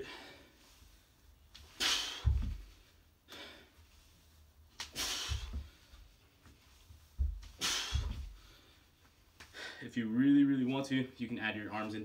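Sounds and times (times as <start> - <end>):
feet thumping on exercise mat: 1.6 - 3.5, 4.7 - 9.6
man exhaling sharply: 1.8 - 2.4, 5.0 - 5.6, 7.6 - 8.4.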